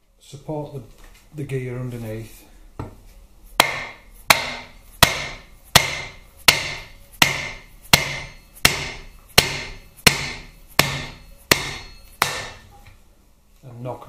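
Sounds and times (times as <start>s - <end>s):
hammer knocking on metal gear: 3.6s - 12.6s.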